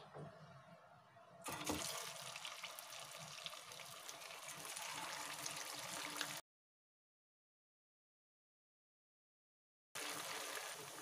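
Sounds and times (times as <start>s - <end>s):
food deep-frying in sizzling oil: 1.5s - 6.4s, 10.0s - 11.0s
small crackles of frying oil: 1.5s - 6.4s, 10.0s - 11.0s.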